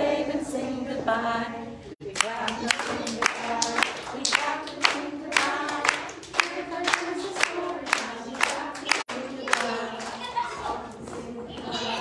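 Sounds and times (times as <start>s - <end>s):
voices singing children's song: 0.0s - 12.0s
hand claps: 2.2s - 10.2s.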